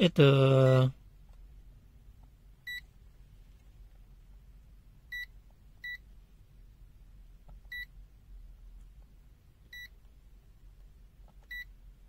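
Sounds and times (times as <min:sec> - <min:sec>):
multimeter beeps: 0:05.1 - 0:06.0, 0:09.7 - 0:09.9, 0:11.5 - 0:11.7.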